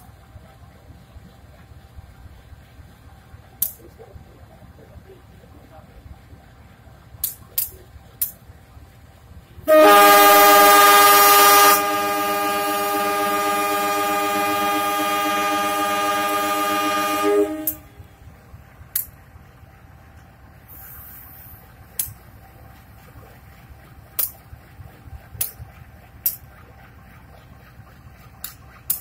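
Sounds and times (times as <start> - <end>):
locomotive air horn blast: 9.7 - 18.2.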